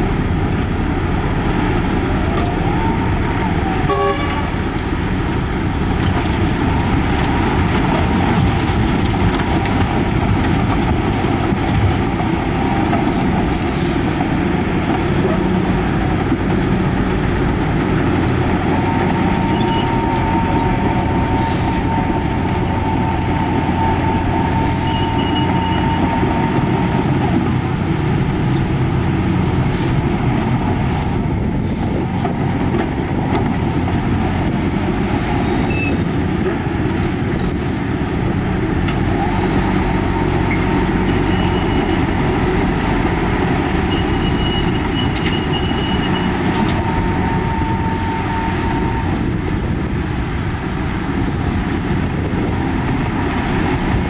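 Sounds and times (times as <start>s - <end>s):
diesel machinery engine drone: 0.0s - 54.0s
high metallic squeals: 18.4s - 26.6s, 43.8s - 49.2s.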